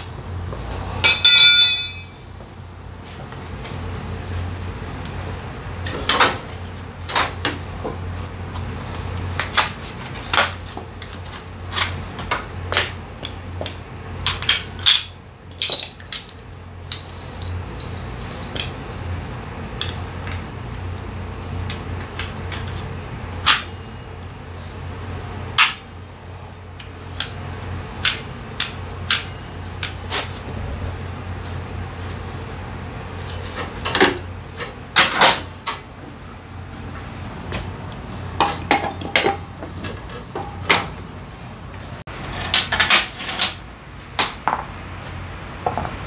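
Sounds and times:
steady low hum: 0.0 - 42.2
metallic clinks of brake parts: 1.0 - 2.5, 14.7 - 18.8.

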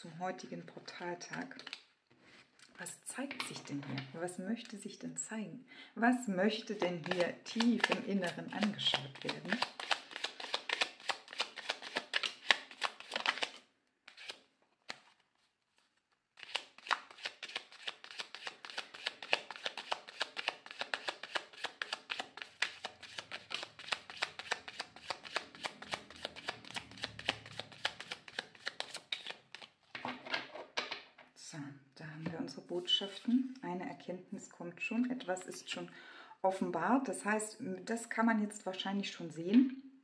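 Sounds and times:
cards being shuffled: 6.7 - 29.8, 32.8 - 33.4.

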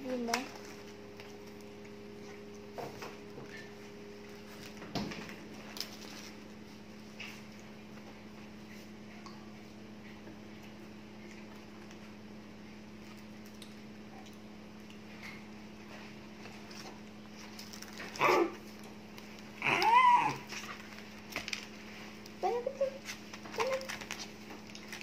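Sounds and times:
steady low hum: 0.0 - 25.0
high-pitched yelp: 19.6 - 20.4
plastic cutlery and paper rustling: 23.0 - 25.0.

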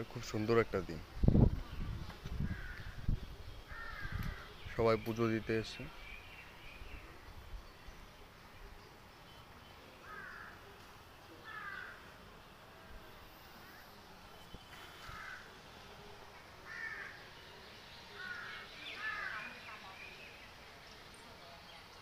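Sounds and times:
crow cawing: 3.7 - 4.5, 10.0 - 10.6, 11.4 - 12.1, 14.9 - 15.5, 16.6 - 17.2, 18.2 - 19.6.

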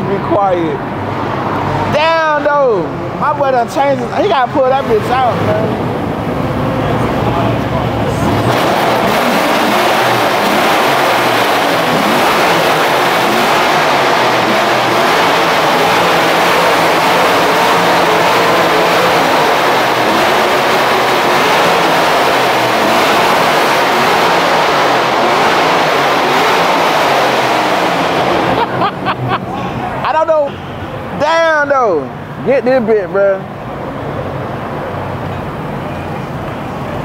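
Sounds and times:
car engine running: 2.7 - 31.2.

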